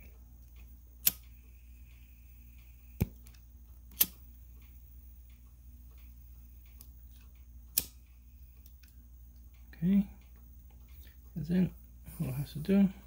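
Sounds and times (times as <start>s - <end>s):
low steady hum: 0.0s - 13.0s
lighter clicking: 1.0s - 1.3s, 3.0s - 4.2s, 7.7s - 8.0s.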